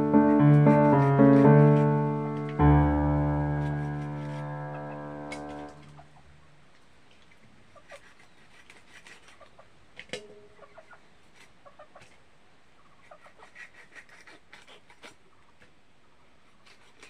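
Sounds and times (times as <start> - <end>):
chickens clucking: 10.4 - 12.2, 12.8 - 13.6.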